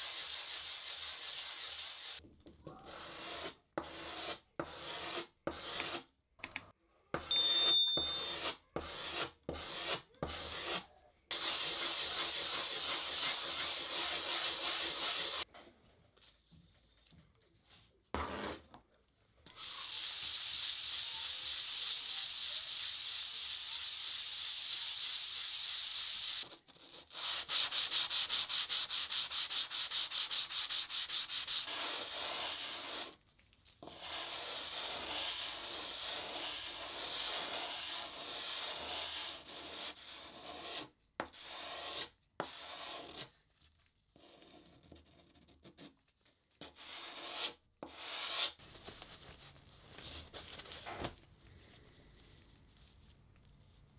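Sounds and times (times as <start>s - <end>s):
blade scraping on sandpaper: 0.0s - 2.2s, 8.3s - 15.4s, 19.6s - 33.2s.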